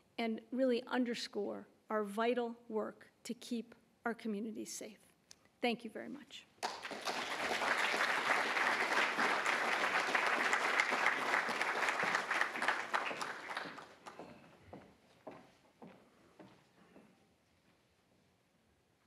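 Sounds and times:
audience applauding: 6.6 - 14.4.

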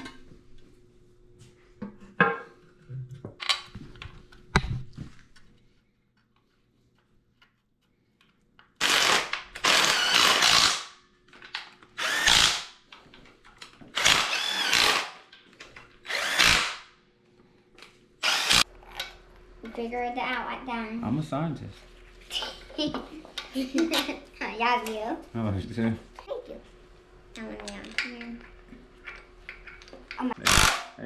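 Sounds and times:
cordless drivers whirring: 18.2 - 18.6.

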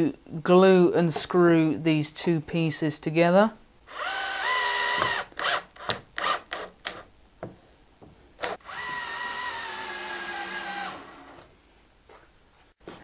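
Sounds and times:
cordless drill driving screws: 3.9 - 7.0, 8.4 - 11.5.

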